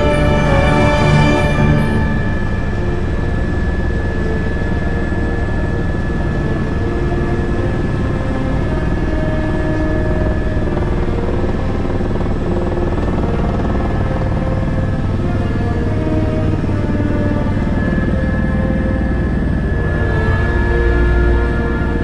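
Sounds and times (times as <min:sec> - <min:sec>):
helicopter turbine whine: 0:00.0 - 0:22.0
rotor beating: 0:00.0 - 0:22.0.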